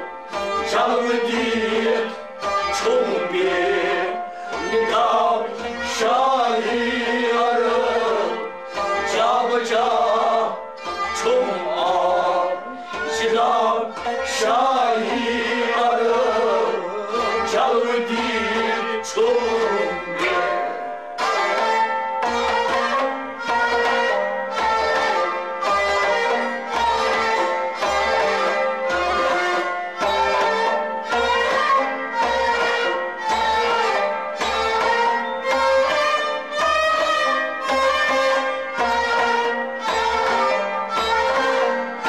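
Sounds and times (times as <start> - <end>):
harmonium and string melody: 0.0 - 42.0
goblet drum beating: 9.0 - 42.0.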